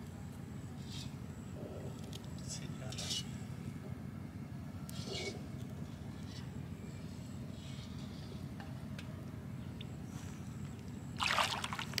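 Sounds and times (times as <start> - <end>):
water splashing and dripping: 11.2 - 12.0.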